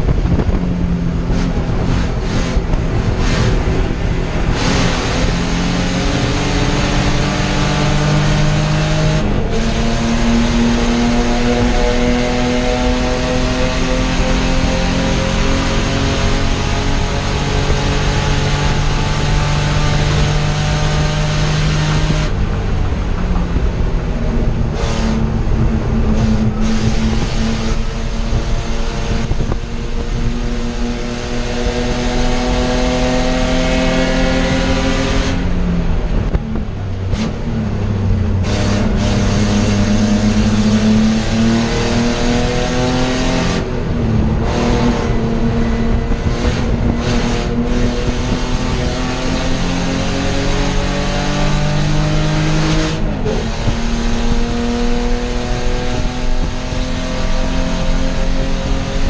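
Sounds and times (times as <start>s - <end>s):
car engine accelerating: 0.0s - 59.0s.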